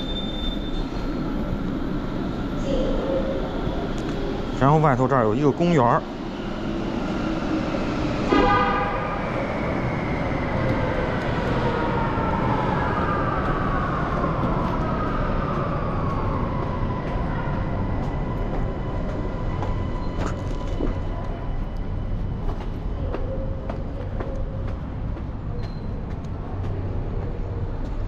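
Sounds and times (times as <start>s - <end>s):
train rumble and motor whine: 0.0s - 28.0s
train horn toot: 8.3s - 9.3s.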